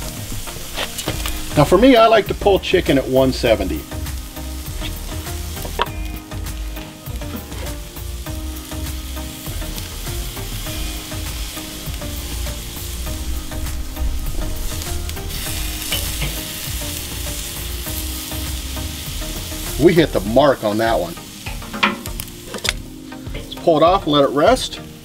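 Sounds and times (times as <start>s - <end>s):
chicken sizzling on a grill: 0.0s - 25.0s
low rumble: 10.6s - 18.0s.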